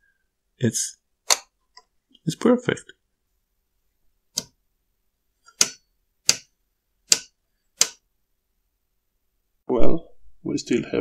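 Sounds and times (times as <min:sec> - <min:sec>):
oscilloscope switches clicking: 0:04.4 - 0:04.6, 0:05.5 - 0:06.5, 0:07.1 - 0:08.0.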